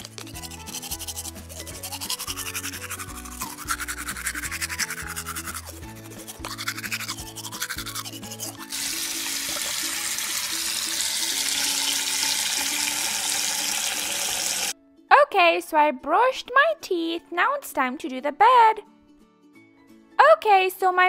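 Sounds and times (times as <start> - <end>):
toothbrush scrubbing: 0.0 - 11.8
background music: 0.0 - 21.0
running tap water: 8.6 - 14.8.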